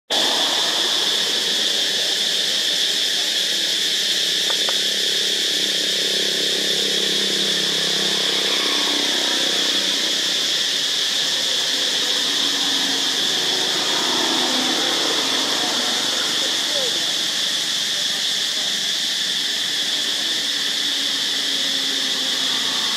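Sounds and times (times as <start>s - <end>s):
insects droning in chorus: 0.1s - 22.9s.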